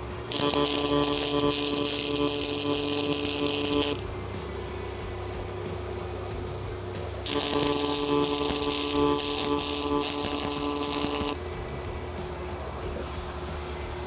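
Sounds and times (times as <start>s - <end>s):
welder arc sizzling and crackling: 0.0s - 4.9s, 6.9s - 11.5s
steady hum: 0.0s - 14.0s.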